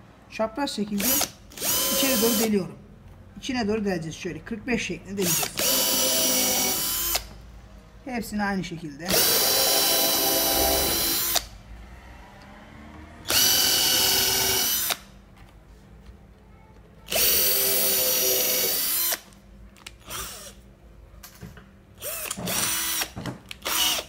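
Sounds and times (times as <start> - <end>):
cordless drill boring wood: 1.0 - 2.5, 5.2 - 7.3, 9.1 - 11.5, 13.2 - 15.0, 17.1 - 19.2, 20.1 - 20.5, 22.0 - 24.0.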